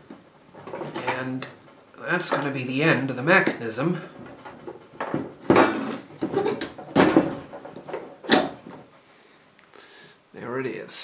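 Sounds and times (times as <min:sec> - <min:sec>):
plastic and metal parts rattling: 0:00.5 - 0:01.3, 0:04.0 - 0:08.9.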